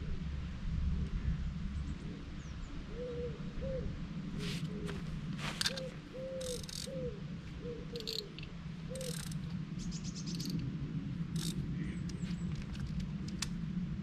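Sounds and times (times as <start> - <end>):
wood pigeon cooing: 2.9 - 9.4
fishing reel clicks and rustles: 5.4 - 7.0, 8.0 - 9.5, 10.3 - 10.6, 11.3 - 13.6.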